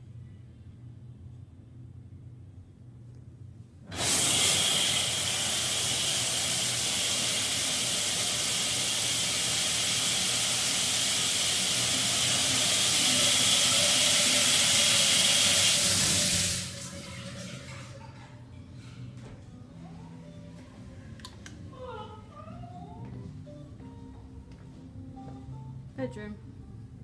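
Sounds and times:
shower water spraying on tiles: 3.9 - 17.4.

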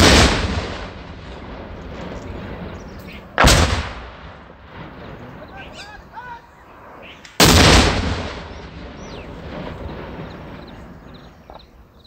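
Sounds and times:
rocket launcher blast: 0.0 - 5.8, 7.3 - 10.9
rolling echo: 0.0 - 12.0.

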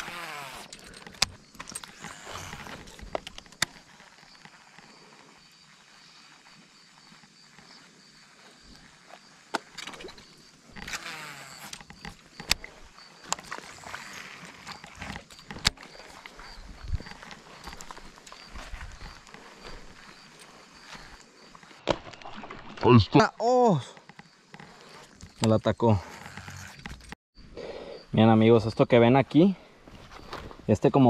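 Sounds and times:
fishing reel spool whirring: 26.0 - 27.0.

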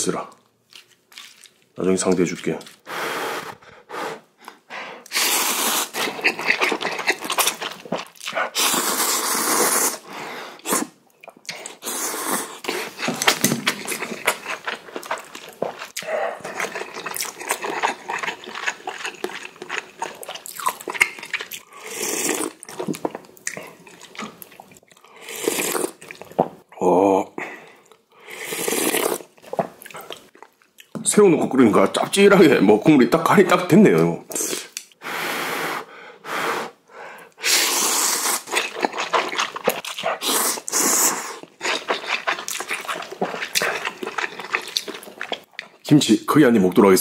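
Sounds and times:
chewing: 0.7 - 2.9, 5.8 - 9.3, 10.6 - 26.5, 38.0 - 45.8
slurps of broth: 5.0 - 14.6, 21.6 - 22.6, 25.0 - 26.2, 28.2 - 29.3, 37.4 - 45.4
noodles slurped loudly: 5.1 - 22.9, 37.4 - 45.5.

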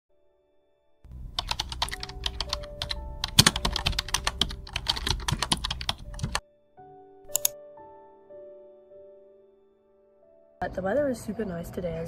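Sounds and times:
keyboard typing: 1.2 - 6.4.

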